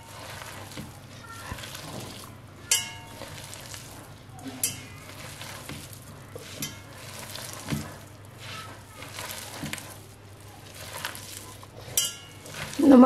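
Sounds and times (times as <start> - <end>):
batter squelching when stirred: 0.0 - 13.0
spoon clinking on glass bowl: 11.9 - 12.8.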